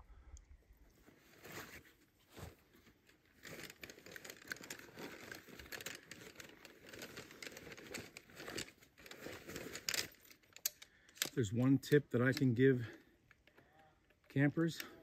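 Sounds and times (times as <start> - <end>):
camping gear crinkling: 0.8 - 11.4.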